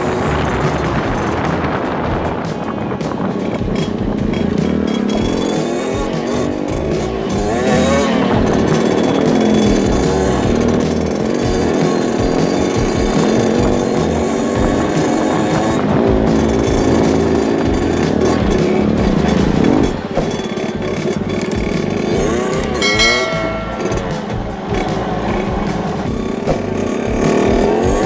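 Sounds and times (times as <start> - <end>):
wind buffeting microphone: 0.0 - 5.4
motorcycle engines revving: 0.0 - 28.0.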